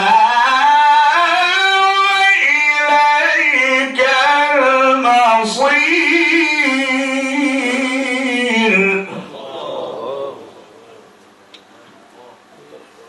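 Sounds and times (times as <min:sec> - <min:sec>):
man reciting melodically: 0:00.0 - 0:10.4.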